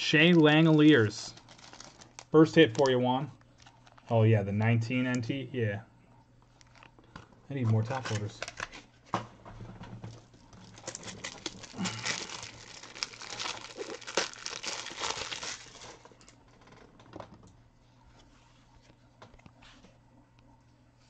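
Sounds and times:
plastic wrapping crinkling: 0.0 - 4.2, 6.5 - 7.1, 10.1 - 16.9.

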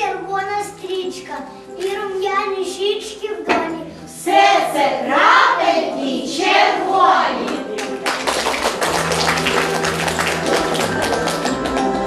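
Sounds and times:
child speaking: 0.0 - 3.9.

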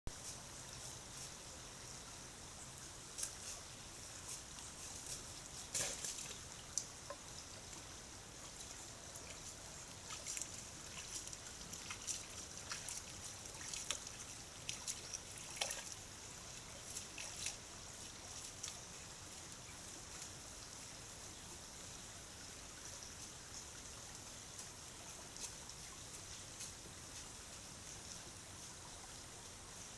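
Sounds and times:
steady hiss: 0.1 - 29.9
water trickling: 1.8 - 29.9
small splashes in water: 9.3 - 18.9.

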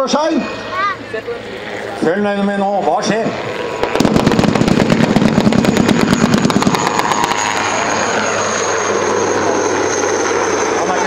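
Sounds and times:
helicopter rotor and turbine whine: 0.0 - 11.0
rapid firework bangs: 3.8 - 7.7.

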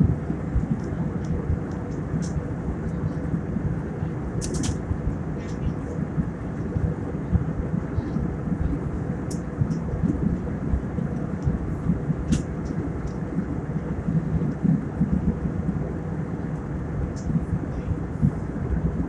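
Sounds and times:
airliner cabin rumble: 0.0 - 19.0
faint constant hum: 0.0 - 19.0
light ticks: 9.3 - 9.8.

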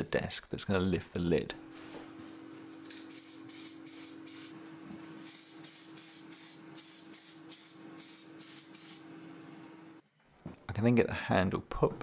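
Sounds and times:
spray paint can hissing: 3.1 - 4.5, 5.2 - 9.0.

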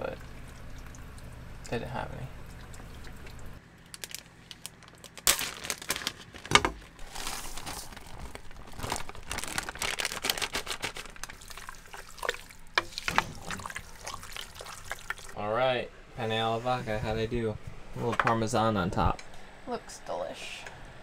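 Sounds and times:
plastic bag crinkling: 3.8 - 15.4
utensil stirring pasta: 11.2 - 15.4.

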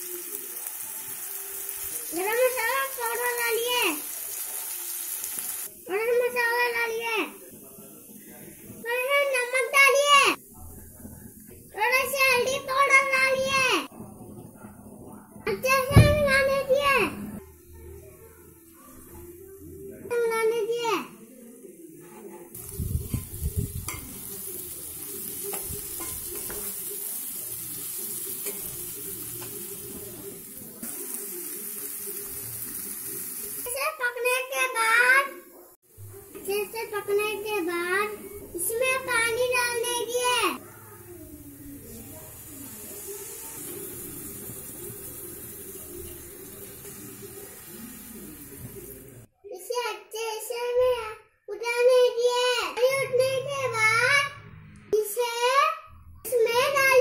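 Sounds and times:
vegetables frying with sizzle: 0.0 - 10.5, 22.6 - 35.0, 36.2 - 49.3
water pouring into a pot: 41.4 - 49.3.

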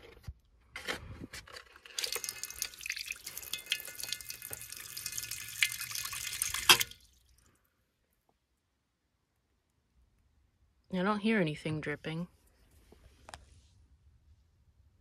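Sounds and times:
water pouring into a sink: 1.8 - 7.4.

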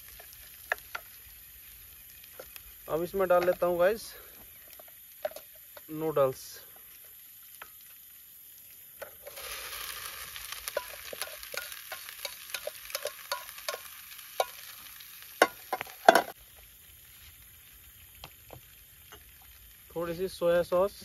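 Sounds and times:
noodles sizzling in a pan: 0.0 - 21.0
spatula clicking and scraping: 10.7 - 14.6.

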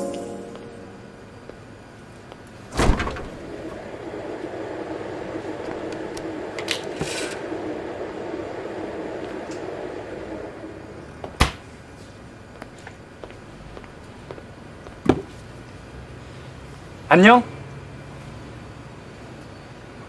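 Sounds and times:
cooler humming: 2.5 - 11.8.

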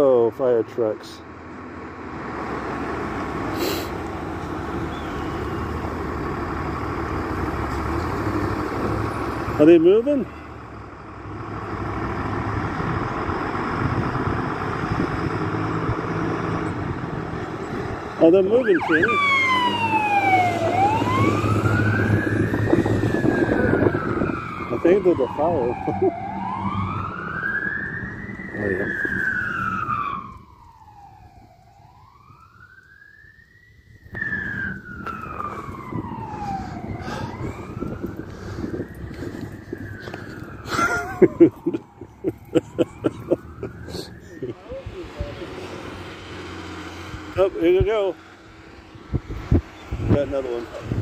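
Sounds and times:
fire engine diesel engine running: 0.9 - 31.8, 33.8 - 49.5.

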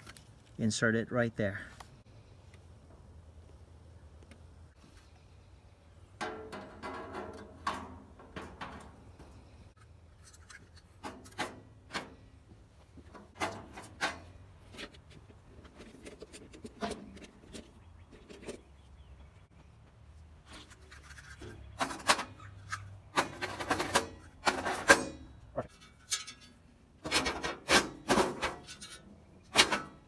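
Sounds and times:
sheet metal clinks and scrapes: 6.2 - 12.3, 13.1 - 15.0, 20.6 - 30.0.

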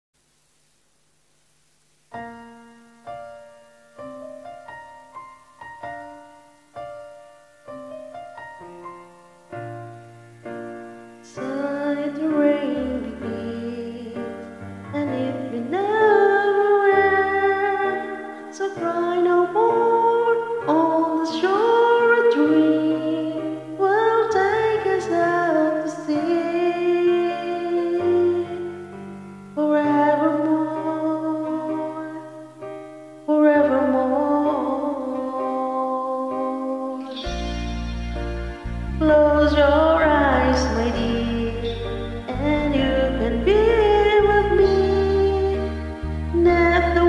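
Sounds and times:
electric piano ballad: 2.1 - 47.0
woman singing: 11.2 - 29.0, 29.6 - 32.6, 33.2 - 37.4, 39.0 - 47.0.

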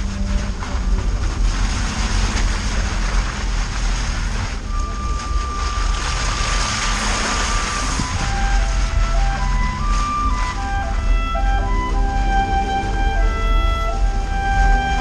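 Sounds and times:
vehicle engine rumble: 0.0 - 15.0
wind rushing over camera: 6.3 - 10.6.

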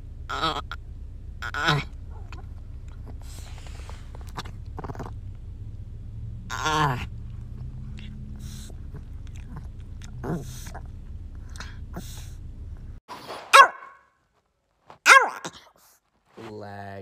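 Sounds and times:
faint steady hum: 0.0 - 13.0
dog whining: 0.3 - 0.8, 1.4 - 5.2, 6.5 - 12.3, 15.1 - 15.9
dog barking: 13.5 - 14.1, 15.0 - 15.6.

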